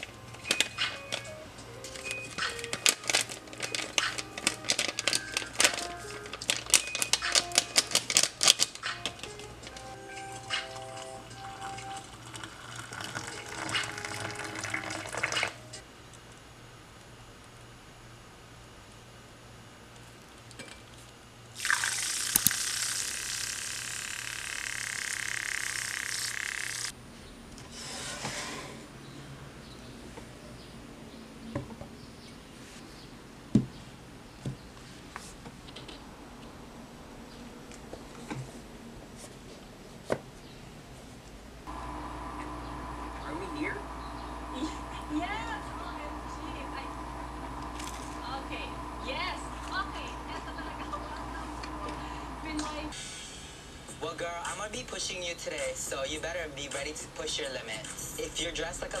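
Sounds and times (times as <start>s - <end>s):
soft background music: 0.0s - 15.8s
plastic sachet crinkling: 2.0s - 10.0s
milk frother whirring: 9.4s - 15.8s, 21.5s - 27.0s, 41.7s - 53.0s.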